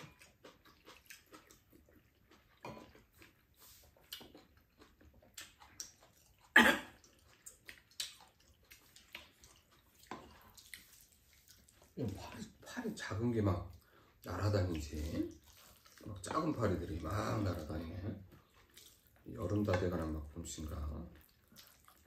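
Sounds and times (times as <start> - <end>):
chewing: 0.0 - 22.0.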